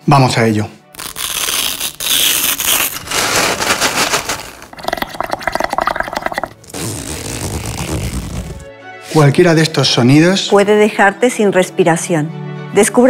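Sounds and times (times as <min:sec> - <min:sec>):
fine velcro-like crackling: 0:00.9 - 0:04.8, 0:06.5 - 0:08.7.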